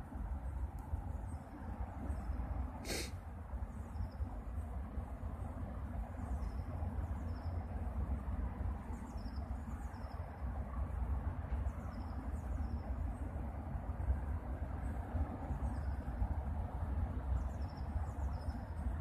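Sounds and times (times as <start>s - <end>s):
small birds chirping: 8.8s - 10.3s.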